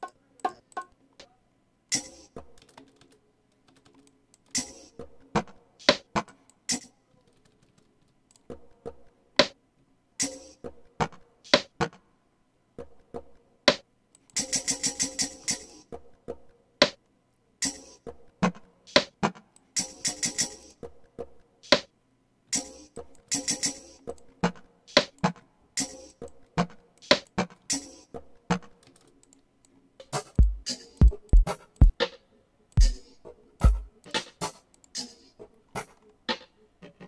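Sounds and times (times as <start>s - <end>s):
hand percussion and shaker loop: 30.1s - 32.0s, 32.8s - 34.6s
deep kick drum: 30.4s - 32.0s, 33.6s - 33.9s.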